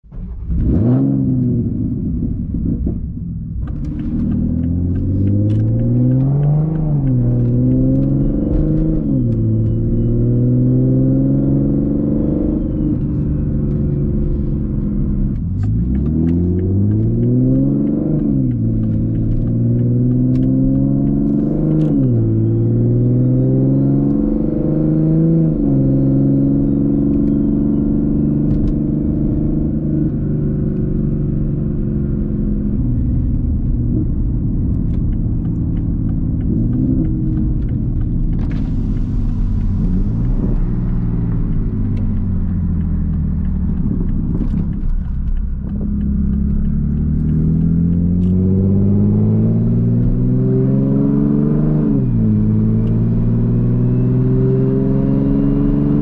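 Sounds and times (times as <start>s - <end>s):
car exhaust revving through gears: 0.1s - 56.0s.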